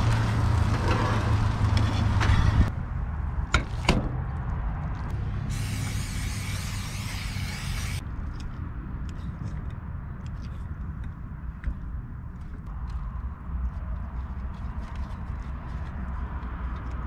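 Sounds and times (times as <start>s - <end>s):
steady low rumble: 0.0s - 17.0s
cooking spray hissing: 5.5s - 8.0s.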